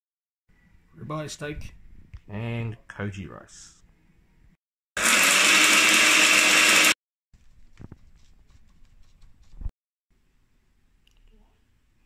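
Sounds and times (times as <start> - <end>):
kitchen blender running: 5.0 - 7.0.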